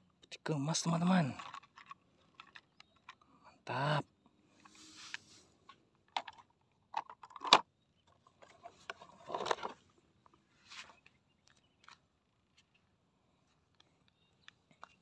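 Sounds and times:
plastic toy cars clicking: 1.0 - 3.3, 6.0 - 7.7
rustling scrapes: 4.6 - 5.6.

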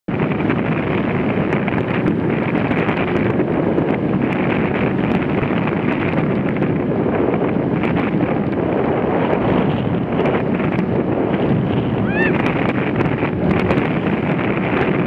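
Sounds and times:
wind buffeting microphone: 0.1 - 15.0.

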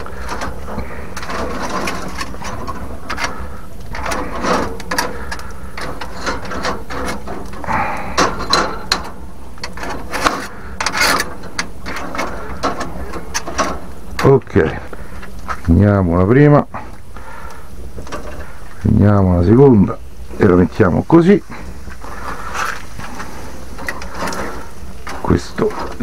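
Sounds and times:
scraping at a grill: 0.0 - 15.7, 16.8 - 18.8, 19.8 - 26.0.

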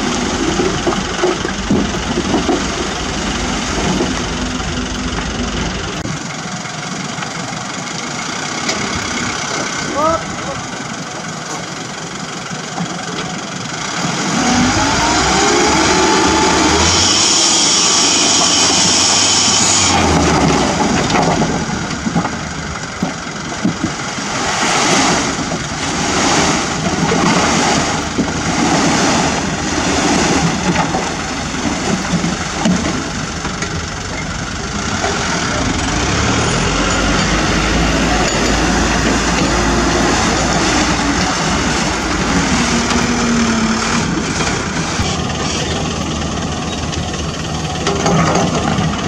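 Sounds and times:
high whine: 0.0 - 6.4, 13.9 - 22.0, 24.5 - 48.9
second truck engine: 0.0 - 49.0
truck engine running: 0.0 - 49.0
hydraulic hoist: 14.0 - 21.9
dirt and rocks sliding out: 23.7 - 33.2.

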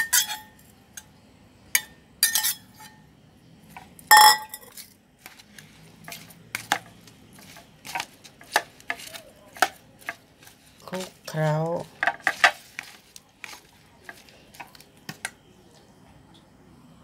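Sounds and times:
metal spoon clinking against bowls: 0.0 - 0.6, 1.8 - 3.0, 3.8 - 4.9.

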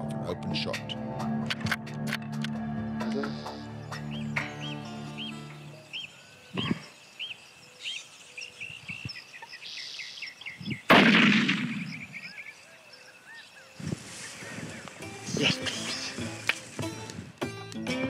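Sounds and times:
small birds chirping: 3.0 - 10.9, 11.5 - 17.2
rifle shot with echo: 10.9 - 12.2.

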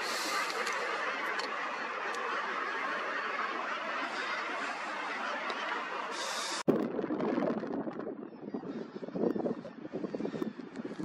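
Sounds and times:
seabird colony calling: 0.0 - 6.7, 8.1 - 11.0
wind buffeting microphone: 6.2 - 11.0.

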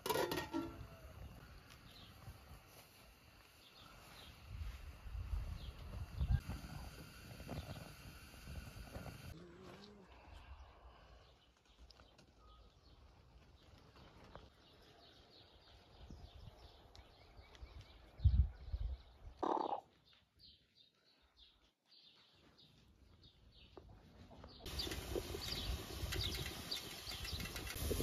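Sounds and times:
small birds chirping: 10.3 - 28.0.

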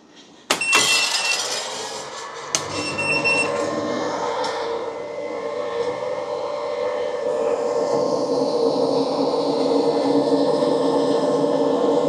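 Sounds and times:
cooling fan humming: 2.2 - 10.0.

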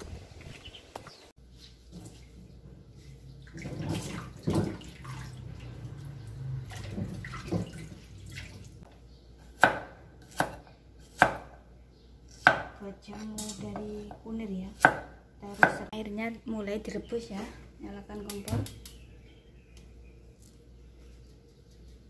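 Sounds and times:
tap water running: 3.4 - 8.8
cleaver chopping on wood: 9.6 - 11.6, 12.4 - 12.8.

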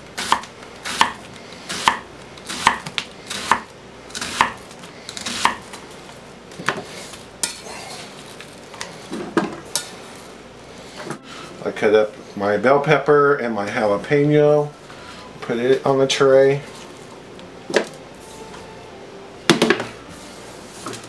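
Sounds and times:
knife slicing onion on wooden board: 0.2 - 5.6.

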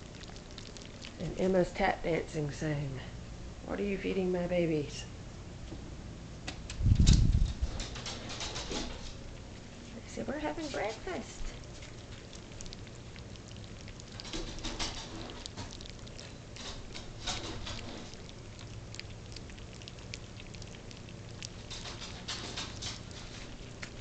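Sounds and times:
puppies lapping wet food: 0.0 - 2.1, 7.4 - 24.0.

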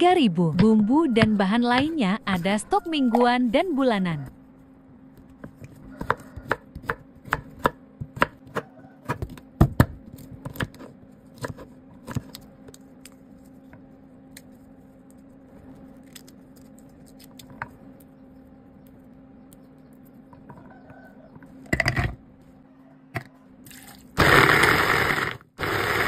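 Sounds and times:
steady low hum: 0.0 - 24.3
knife chopping on wooden board: 0.5 - 2.0, 5.4 - 12.3.

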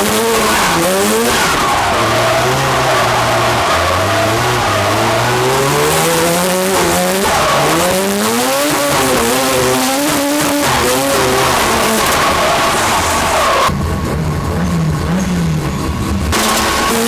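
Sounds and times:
rotary engine revving hard: 0.0 - 17.0
tyres screeching on tarmac: 0.2 - 13.7.

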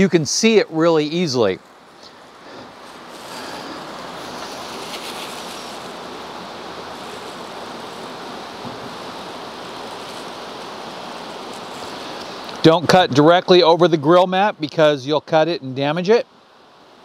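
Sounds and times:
stream rushing: 0.0 - 17.0.

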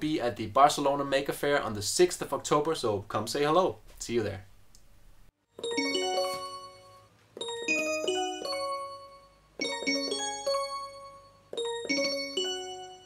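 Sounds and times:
melodic outro music: 5.6 - 13.0.

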